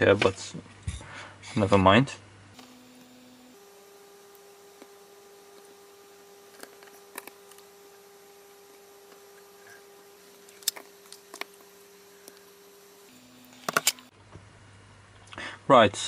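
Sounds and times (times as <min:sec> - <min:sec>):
faint steady hum: 0:00.0 - 0:16.0
electronic parts clicking: 0:04.2 - 0:14.1.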